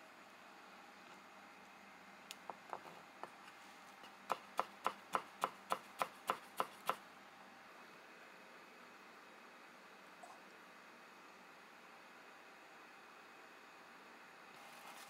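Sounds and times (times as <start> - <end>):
knife chopping on cutting board: 4.3 - 7.0.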